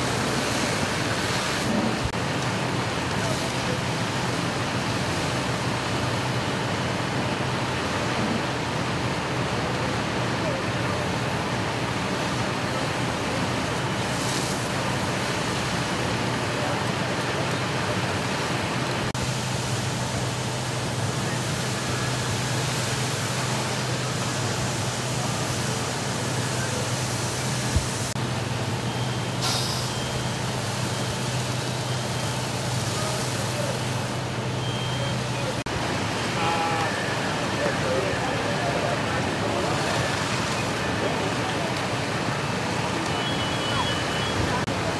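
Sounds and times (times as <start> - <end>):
fire engine humming: 0.0 - 44.9
hose water spraying: 12.2 - 16.0, 19.2 - 28.2, 29.4 - 34.6.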